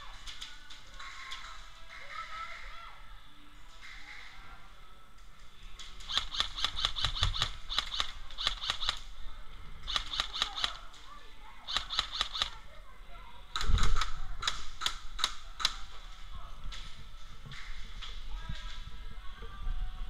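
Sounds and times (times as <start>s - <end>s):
airsoft guns firing: 6.0s - 9.1s, 9.8s - 10.9s, 11.7s - 12.6s.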